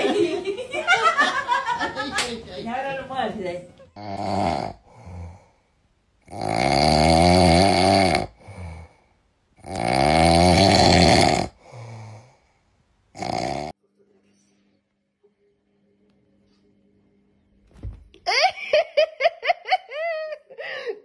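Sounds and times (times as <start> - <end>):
small dog snoring: 4.0 - 5.4, 6.2 - 8.9, 9.6 - 12.2, 13.1 - 13.7.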